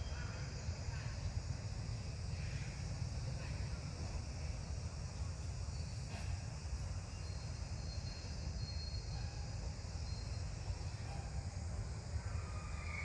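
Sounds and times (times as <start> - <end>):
high-pitched insect calls: 7.0 - 11.0, 11.9 - 13.0.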